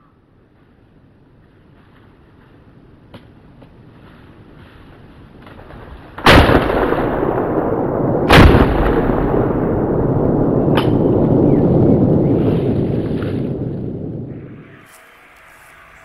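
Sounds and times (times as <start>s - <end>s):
sharp crack: 5.4s - 14.4s
loud blasts: 6.1s - 15.4s.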